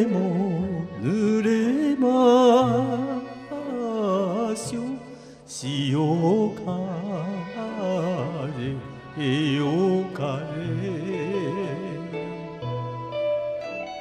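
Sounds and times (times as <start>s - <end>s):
person singing with vibrato: 0.0s - 13.9s
instrumental backing track: 8.8s - 14.0s.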